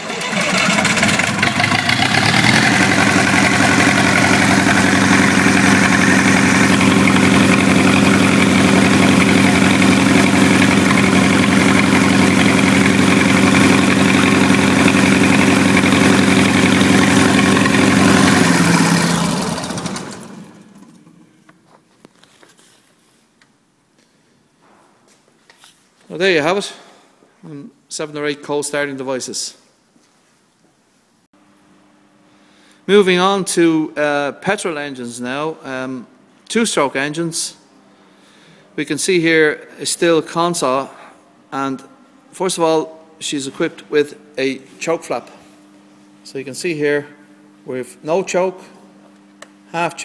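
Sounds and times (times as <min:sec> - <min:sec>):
diesel engine running: 0:00.0 - 0:21.4
engine running down: 0:00.0 - 0:21.4.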